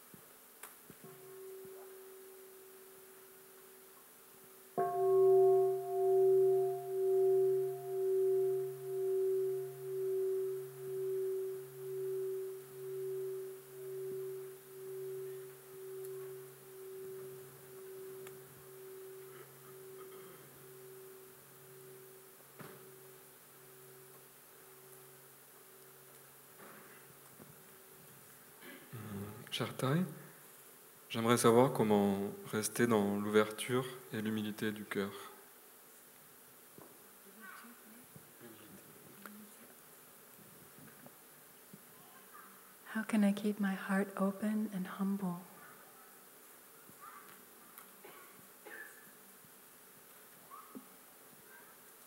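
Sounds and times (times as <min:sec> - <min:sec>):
meditation bell ringing: 0:01.1 - 0:03.4, 0:04.8 - 0:26.4.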